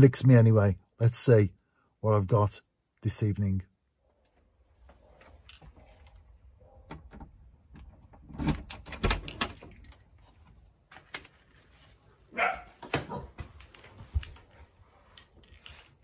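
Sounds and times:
dog barking: 0:04.9 - 0:06.9, 0:12.3 - 0:13.4
key turning in door lock: 0:06.8 - 0:10.2
door latch clicking: 0:06.9 - 0:10.0
keys rattling: 0:08.2 - 0:10.2, 0:13.5 - 0:16.0.

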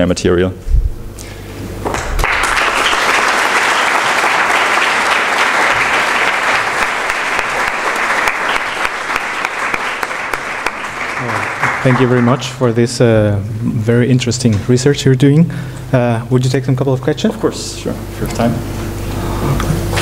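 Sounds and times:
audience applauding: 0:01.9 - 0:12.8.

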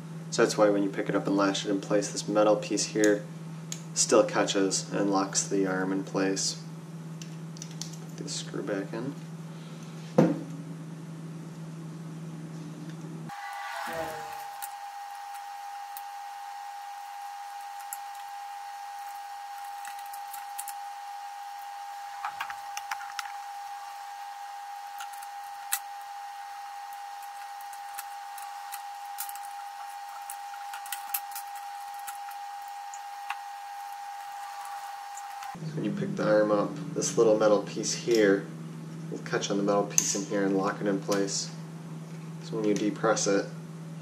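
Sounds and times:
high-pitched whine: 0:13.2 - 0:39.6.

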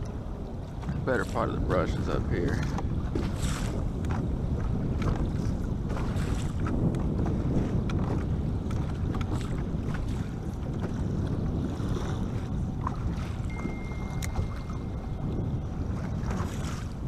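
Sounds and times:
choppy water against boat: 0:00.0 - 0:17.0
wind buffeting microphone: 0:00.0 - 0:17.0
faint thin high tone: 0:13.5 - 0:15.2
light ticks: 0:14.2 - 0:14.4.

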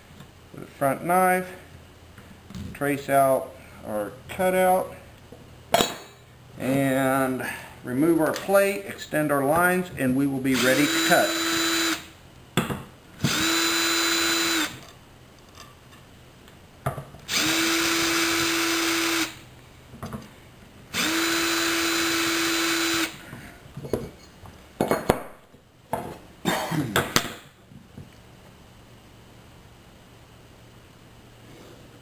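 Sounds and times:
cordless drill whining: 0:10.6 - 0:12.1, 0:13.2 - 0:14.8, 0:17.3 - 0:19.4, 0:20.9 - 0:23.2.

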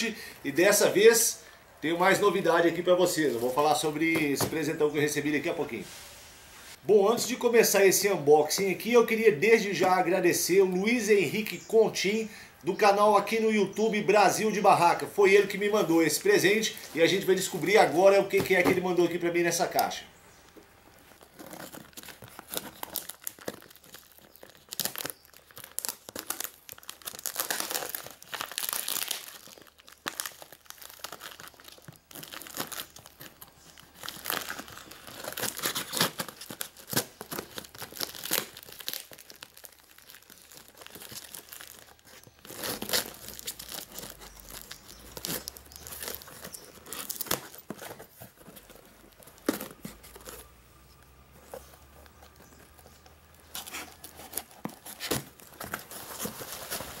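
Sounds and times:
cardboard and paper crinkling: 0:13.8 - 0:57.0
packing tape ripping: 0:21.2 - 0:50.5, 0:52.6 - 0:57.0.

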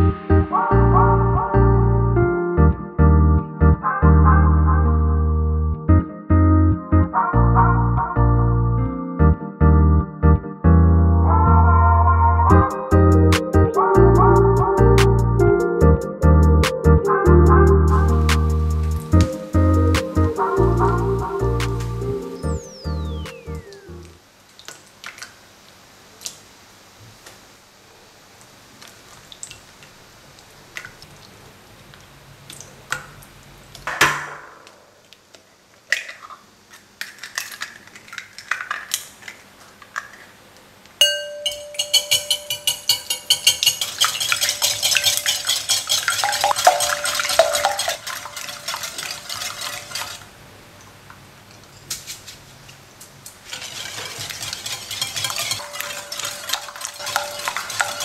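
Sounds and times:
whisk clinking on glass bowl: 0:41.0 - 0:50.2, 0:53.5 - 0:58.0.

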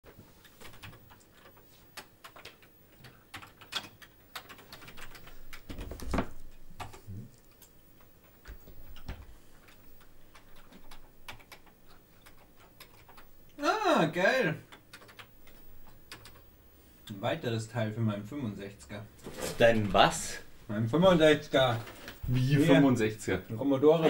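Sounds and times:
keyboard typing: 0:00.5 - 0:13.5, 0:14.7 - 0:16.5.

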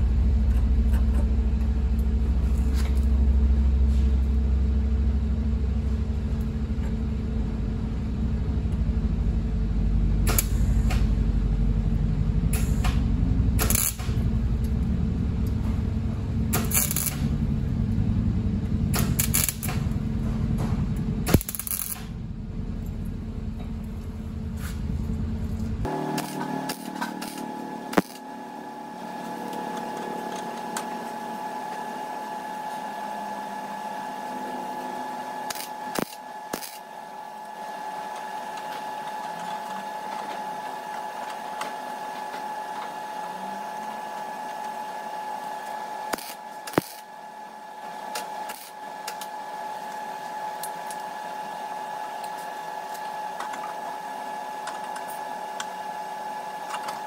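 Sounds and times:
constant high hum: 0:00.0 - 0:57.0
welder buzzing crackle: 0:12.5 - 0:13.0, 0:13.6 - 0:14.5, 0:16.5 - 0:17.9, 0:18.9 - 0:20.1, 0:21.2 - 0:22.2, 0:25.8 - 0:43.2, 0:43.8 - 0:57.0.

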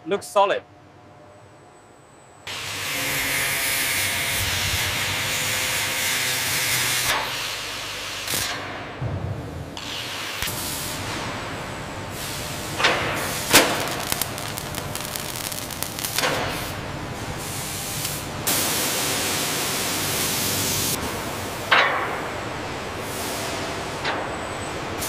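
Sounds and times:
factory background noise: 0:00.0 - 0:25.0
steady hiss: 0:12.2 - 0:21.0.

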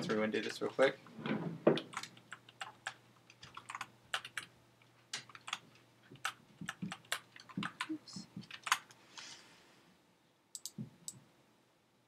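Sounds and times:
typing on keyboard: 0:01.8 - 0:04.5, 0:05.2 - 0:08.9.

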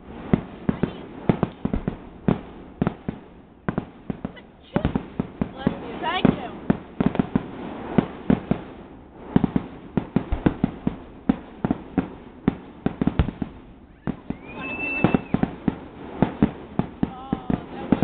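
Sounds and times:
fireworks bangs: 0:00.0 - 0:18.0
rising firework whistle: 0:13.2 - 0:16.6.

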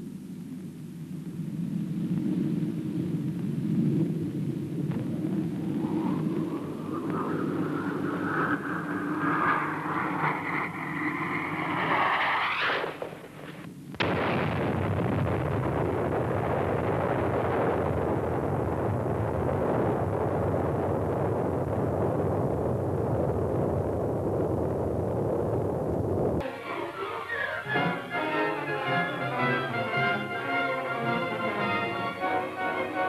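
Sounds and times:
rising multi-tone whine: 0:00.0 - 0:14.6, 0:21.2 - 0:33.0
explosion crack and rumble: 0:01.9 - 0:26.4.

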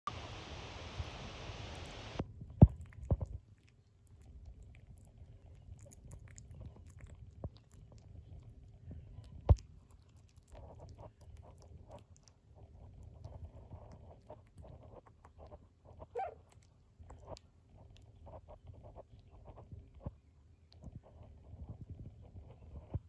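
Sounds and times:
puppies licking wet mouth clicks: 0:01.7 - 0:19.3.

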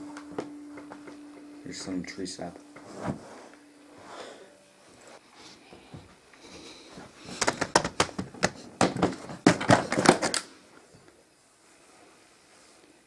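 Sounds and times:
objects clattering in plastic case: 0:07.3 - 0:10.4.

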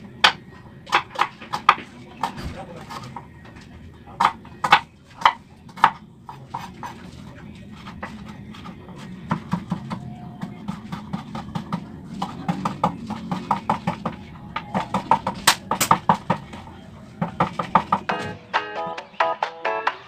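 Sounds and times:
knife chopping on wooden board: 0:00.2 - 0:03.2, 0:04.2 - 0:07.2, 0:07.8 - 0:16.5.

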